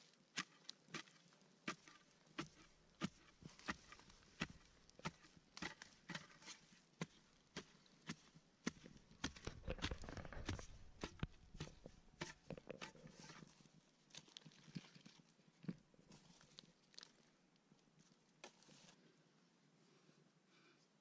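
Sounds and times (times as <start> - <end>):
digging tool scraping into soil: 0.3 - 13.6
dirt crumbling: 0.3 - 13.6.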